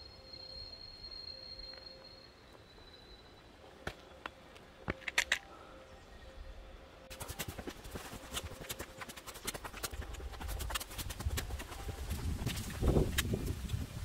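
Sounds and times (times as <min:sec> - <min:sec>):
clicking steps on hard ground: 0:03.8 - 0:05.5.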